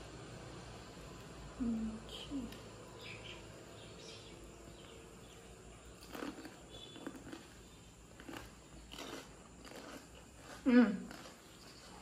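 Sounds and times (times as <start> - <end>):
crisp shells crunching: 6.0 - 11.5.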